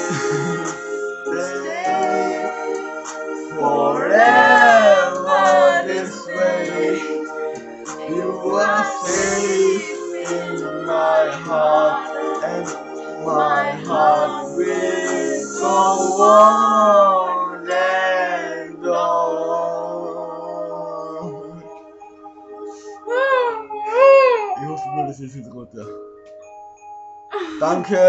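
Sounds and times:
man and woman singing: 0:00.0 - 0:02.8, 0:03.5 - 0:07.3, 0:07.9 - 0:21.8
backing track music: 0:00.0 - 0:28.0.

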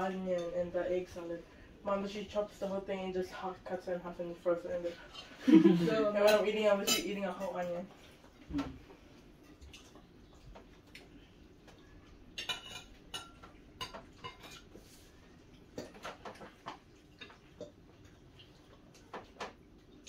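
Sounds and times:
cutlery clinking on plates: 0:12.3 - 0:14.7.

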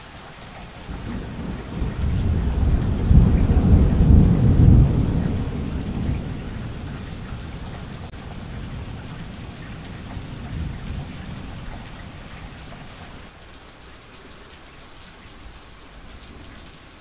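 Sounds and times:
steady rain: 0:00.0 - 0:17.0
thunder rumbling: 0:00.8 - 0:13.2.

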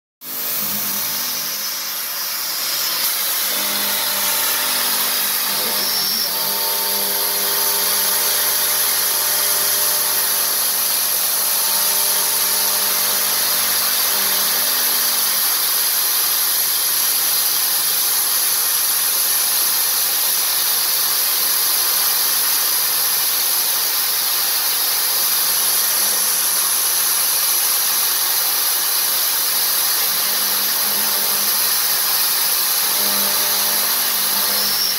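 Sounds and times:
high-pitched spindle whine: 0:00.2 - 0:15.4, 0:32.8 - 0:34.9
metal cutting hiss: 0:00.4 - 0:34.9.

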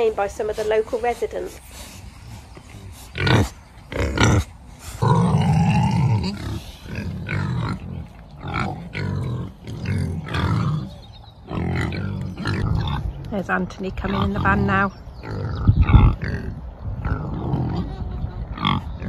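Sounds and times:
pigs grunting: 0:00.0 - 0:13.3, 0:14.1 - 0:19.0
pig loud calls: 0:02.6 - 0:13.1, 0:15.2 - 0:19.0.

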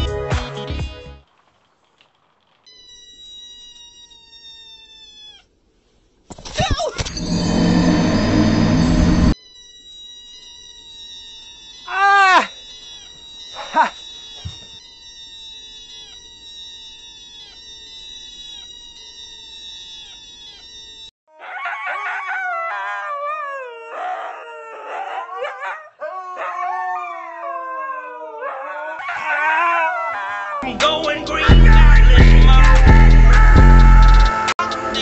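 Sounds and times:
steady high tone: 0:07.1 - 0:09.4
dog howling: 0:11.9 - 0:12.6, 0:13.5 - 0:14.8, 0:21.3 - 0:30.7.

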